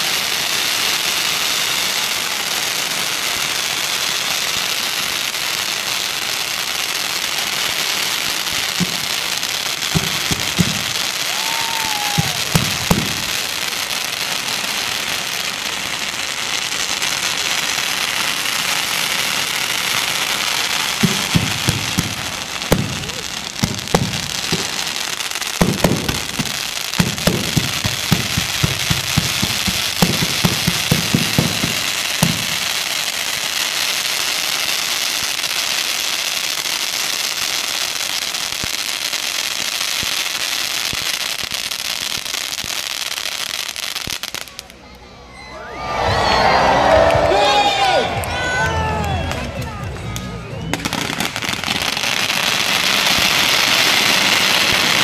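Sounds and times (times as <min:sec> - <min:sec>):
firecrackers crackling: 0:00.0 - 0:55.0
fountain fireworks hissing: 0:00.0 - 0:55.0
loud firecracker pops: 0:08.7 - 0:09.2, 0:09.9 - 0:13.2, 0:21.0 - 0:24.8, 0:25.6 - 0:32.7, 0:49.3 - 0:55.0.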